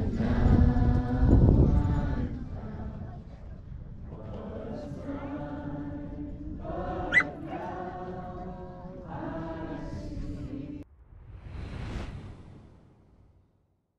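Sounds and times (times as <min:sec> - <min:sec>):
crowd singing: 0:00.0 - 0:10.8
rising whoosh: 0:10.9 - 0:13.4.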